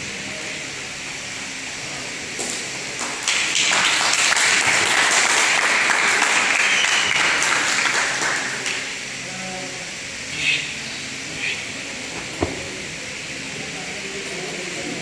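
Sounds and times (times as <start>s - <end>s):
audience applauding: 3.0s - 9.0s.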